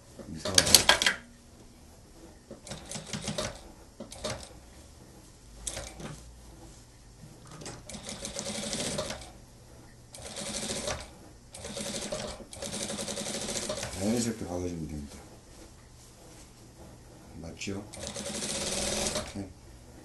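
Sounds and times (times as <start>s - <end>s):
sewing machine stitching: 0.4s - 1.2s, 2.2s - 4.7s, 5.6s - 6.2s, 7.4s - 9.4s, 10.1s - 14.3s, 17.9s - 19.5s.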